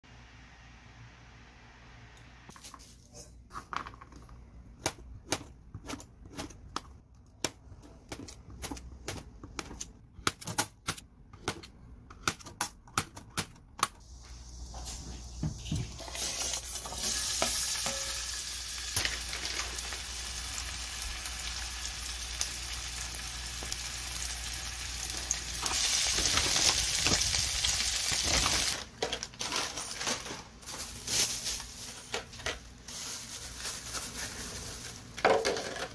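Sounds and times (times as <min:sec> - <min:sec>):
garlic sizzling in oil: 0:14.0 - 0:28.8.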